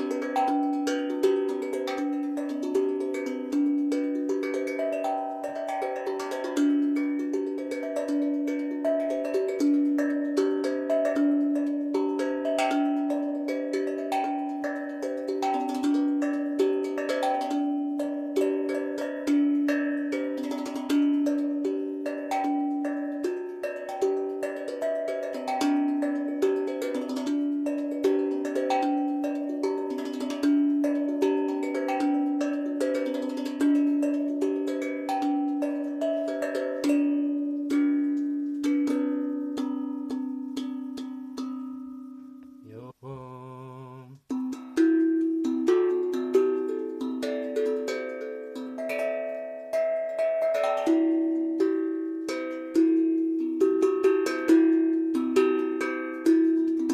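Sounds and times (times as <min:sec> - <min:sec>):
low handpan note: 0:00.0 - 0:43.0
steel handpan melody: 0:00.0 - 0:56.9.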